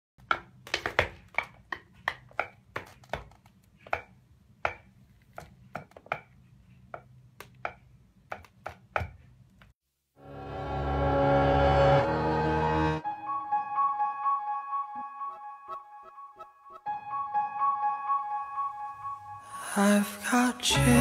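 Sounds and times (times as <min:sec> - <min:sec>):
shoes tapping on wooden mat: 0:00.3 - 0:04.1
music: 0:10.2 - 0:21.0.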